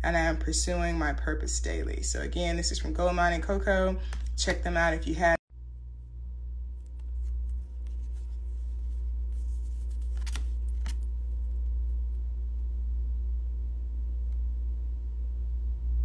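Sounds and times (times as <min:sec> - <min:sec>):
steady low hum: 0:00.0 - 0:16.0
paper card clicks: 0:09.4 - 0:11.1.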